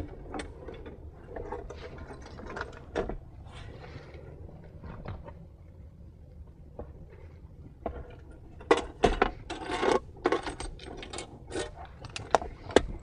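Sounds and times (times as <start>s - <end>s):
sharp metal clicks and rattles: 8.6s - 13.0s.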